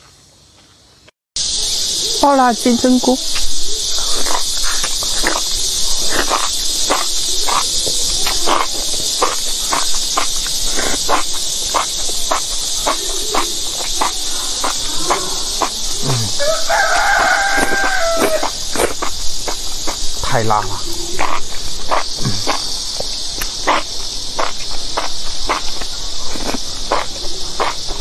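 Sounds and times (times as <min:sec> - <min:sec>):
high insect drone: 0:00.0 - 0:28.0
wet chewing and slurping: 0:03.3 - 0:28.0
rooster crowing: 0:14.8 - 0:18.6.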